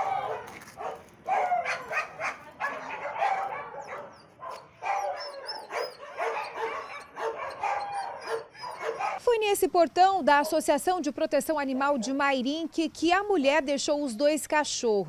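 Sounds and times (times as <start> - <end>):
dogs barking and yelping: 0.0 - 9.2.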